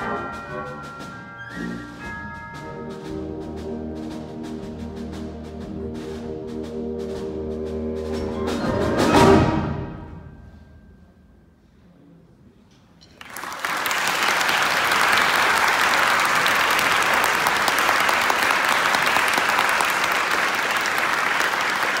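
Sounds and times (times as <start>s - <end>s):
audience applause: 13.2s - 22.0s.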